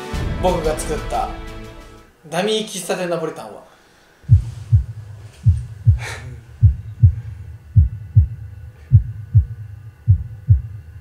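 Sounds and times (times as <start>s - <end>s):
heartbeat thumps: 4.2s - 11.0s.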